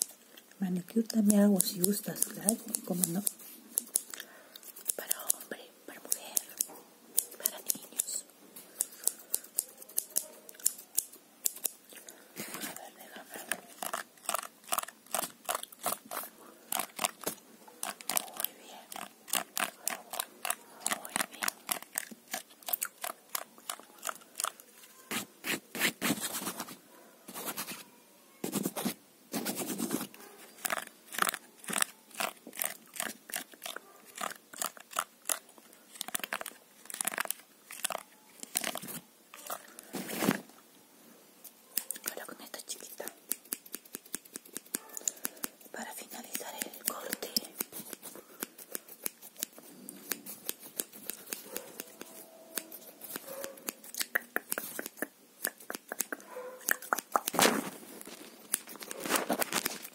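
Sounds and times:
scissors snipping hair: 0:01.0 - 0:25.6, 0:29.6 - 0:39.6, 0:41.8 - 0:57.7, 0:58.4 - 0:59.9
scraping rubs: 0:28.4 - 0:35.4.

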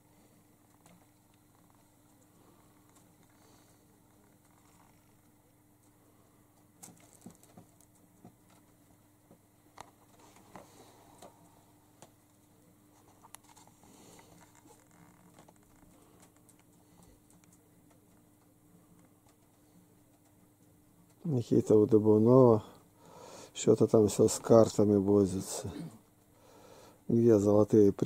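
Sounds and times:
low steady hum: 0:00.0 - 0:28.0
cat tapping and rustling papers: 0:06.8 - 0:08.7.

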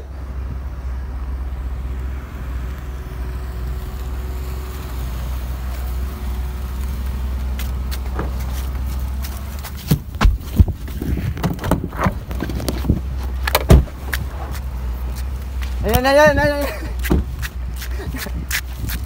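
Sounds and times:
car engine idling: 0:00.0 - 0:18.8
car door opening clicks: 0:11.4 - 0:14.3.

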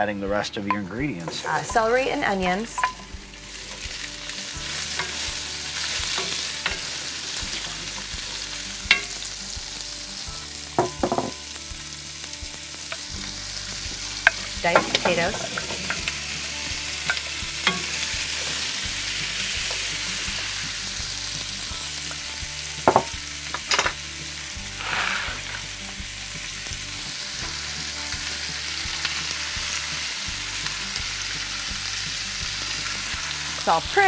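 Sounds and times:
grease and vegetables sizzling: 0:00.0 - 0:34.0.

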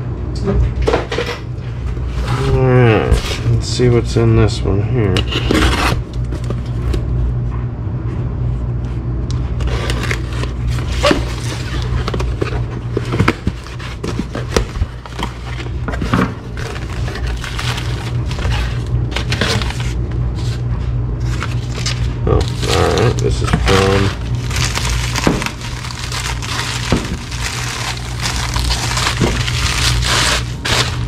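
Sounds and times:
low hum: 0:00.0 - 0:31.0
knife cutting cardboard box: 0:05.2 - 0:06.4, 0:26.2 - 0:31.0.

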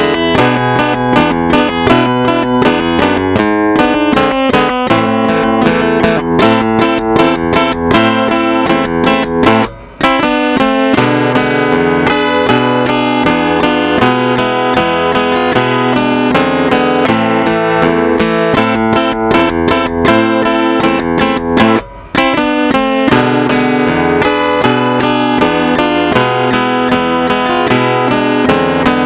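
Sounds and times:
robotic guitar playing: 0:00.0 - 0:29.0.

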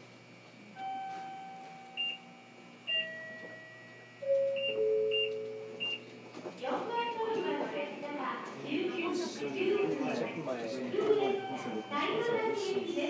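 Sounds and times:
bell-like announcement chime: 0:11.1 - 0:13.0
short high beeps: 0:11.2 - 0:12.4.

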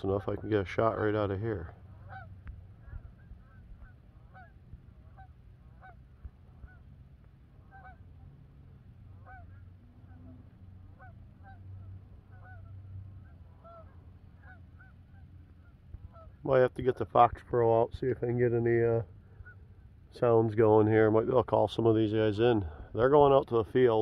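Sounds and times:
low steady rumble: 0:00.0 - 0:24.0
geese honking in flight: 0:00.2 - 0:16.4, 0:19.2 - 0:20.0.

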